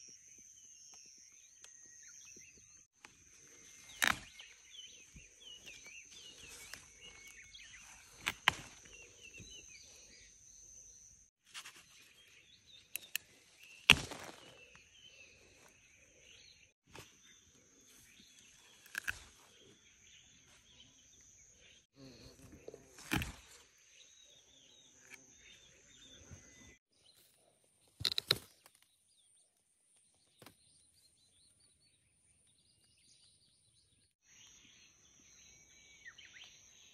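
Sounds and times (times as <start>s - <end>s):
birds chirping: 0.0s - 36.9s
clicks and knocks of plants: 3.0s - 9.7s, 11.5s - 14.9s, 18.5s - 19.5s, 22.5s - 23.7s, 27.2s - 29.0s.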